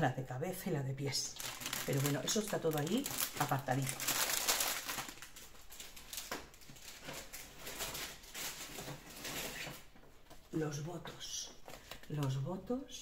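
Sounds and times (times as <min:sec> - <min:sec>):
rustling handling noises: 0:01.3 - 0:12.6.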